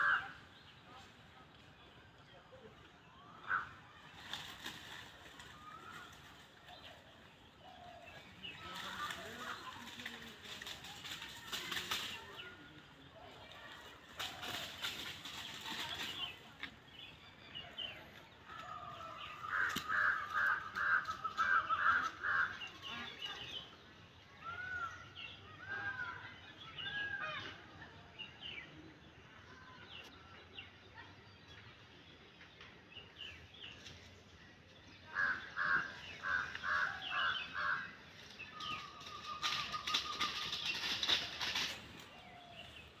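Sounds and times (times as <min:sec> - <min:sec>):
rustling noise: 0:13.7 - 0:16.8, 0:38.1 - 0:43.0.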